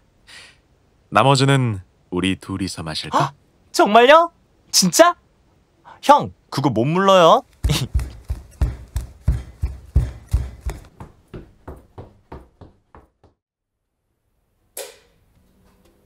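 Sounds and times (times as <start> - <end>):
footsteps walking away: 7.5 - 13.4.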